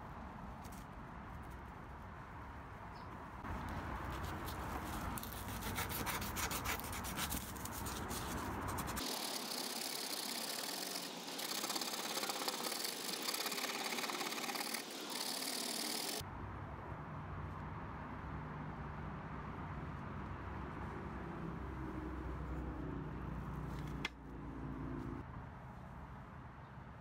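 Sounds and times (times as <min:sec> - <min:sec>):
dry rubbing with pad: 0:03.5 - 0:16.2.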